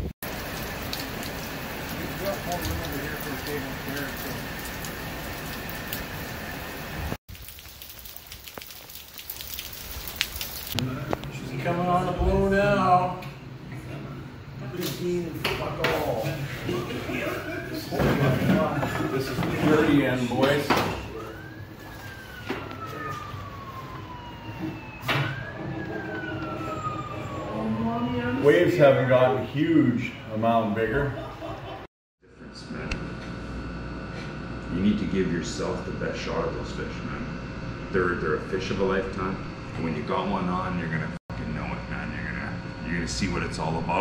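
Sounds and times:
raindrops ticking close by: 0.2 - 10.8
rain falling steadily: 0.2 - 11.2.

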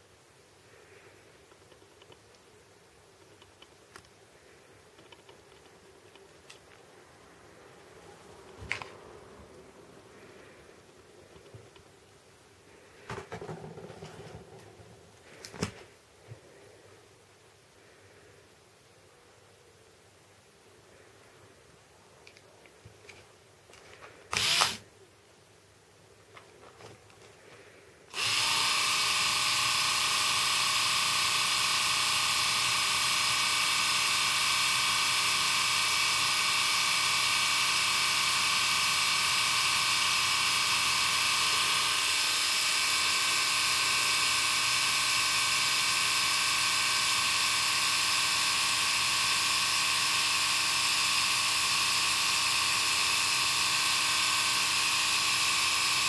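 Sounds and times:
electric epilator whirring: 24.3 - 24.8, 28.1 - 56.0.

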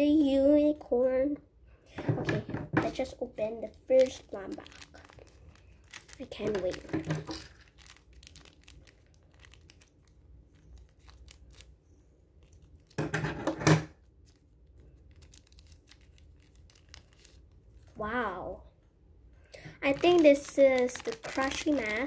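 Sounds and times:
scissors cutting plastic: 2.8 - 9.9, 19.8 - 22.0
plastic wrapper crinkling: 2.8 - 13.0, 14.0 - 18.4, 19.4 - 22.0
plastic bag ripping: 2.9 - 11.8, 14.2 - 18.0, 19.8 - 22.0.

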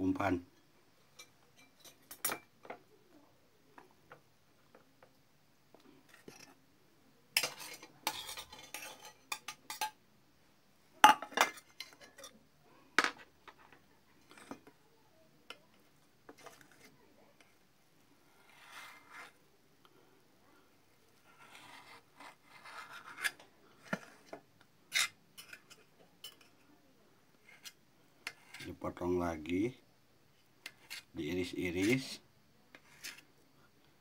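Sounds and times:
knife scraping on plate: 7.4 - 10.0, 18.3 - 19.4, 21.2 - 26.5, 27.4 - 28.7, 30.6 - 31.1, 32.8 - 33.3
metal spoon scraping plate: 7.4 - 10.0, 11.5 - 12.4, 21.3 - 26.5, 32.8 - 33.3.

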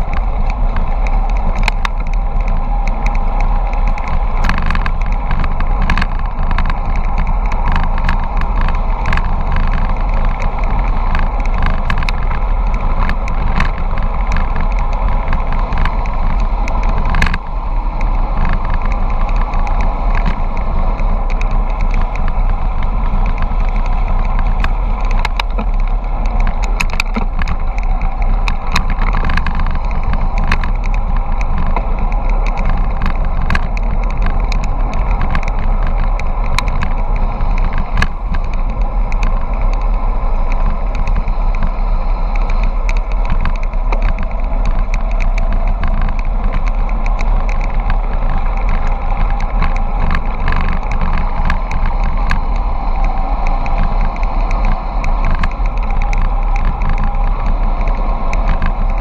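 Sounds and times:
bike clicks and knocks: 0.0 - 59.0
tyres rolling on asphalt: 0.0 - 59.0
wind buffeting microphone: 0.0 - 59.0.

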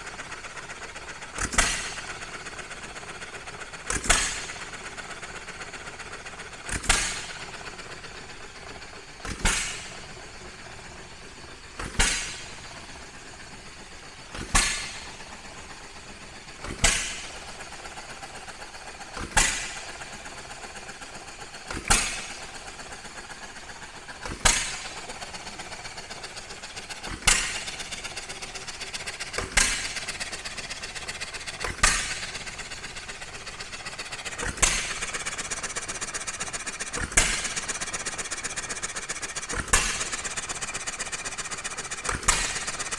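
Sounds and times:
engine clicking while coasting: 0.0 - 42.9
engine firing stroke: 0.0 - 42.9.

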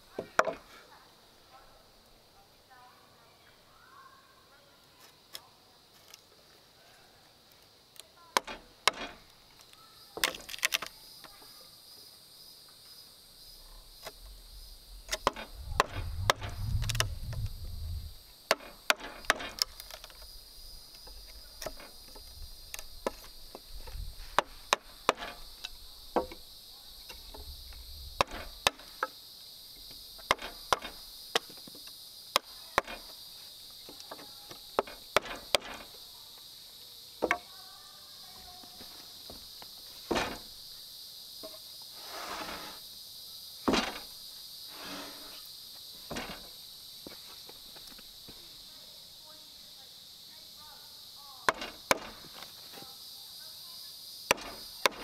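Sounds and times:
high insect drone: 0.0 - 55.0
low rumble: 13.7 - 18.2
sharp blows on wood: 14.0 - 19.7, 51.5 - 52.3, 54.3 - 55.0.

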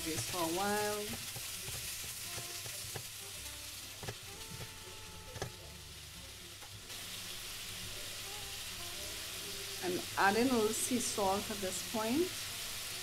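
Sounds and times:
spatula knocking on pan: 0.0 - 5.6
vegetables sizzling in a pan: 0.0 - 13.0.

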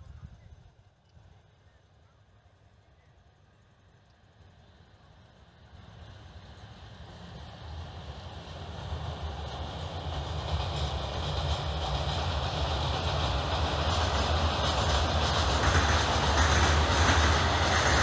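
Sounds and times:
freight train rumbling over bridge: 1.4 - 18.0.

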